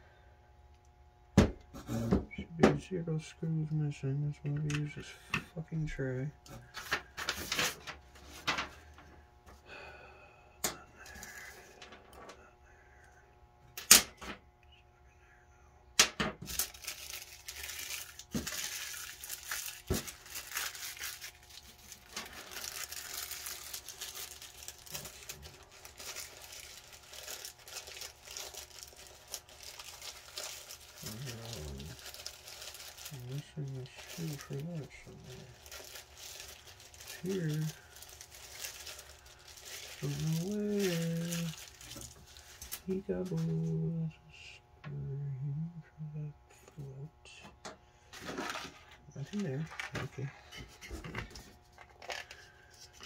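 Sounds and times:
plastic bag crinkling: 6.5s - 9.0s, 16.4s - 43.7s, 48.1s - 53.0s.

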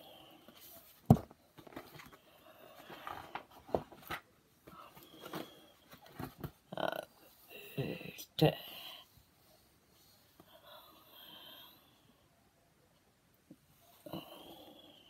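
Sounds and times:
book pages rustling: 0.5s - 6.6s.

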